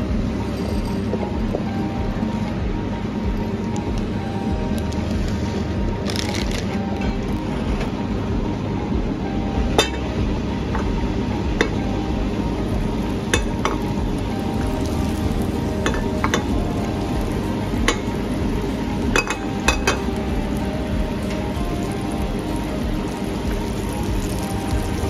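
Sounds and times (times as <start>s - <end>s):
food sizzling in a pan: 12.5s - 25.0s.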